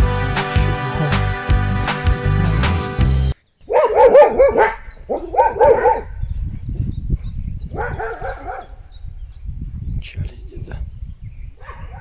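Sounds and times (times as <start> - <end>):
dog barking: 3.7 - 6.2, 7.7 - 8.8, 11.6 - 12.0.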